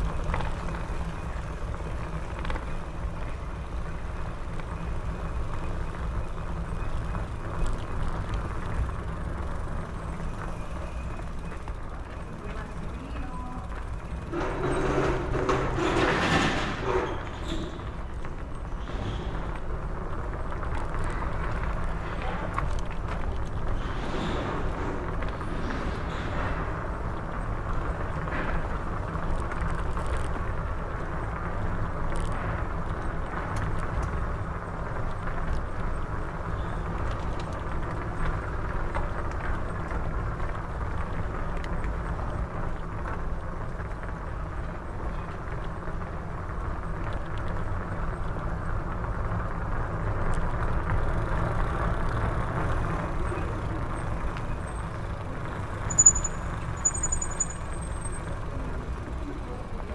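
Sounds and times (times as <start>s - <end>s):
bicycle ride rumble: 0.0s - 59.9s
high-pitched squeal: 55.8s - 58.3s.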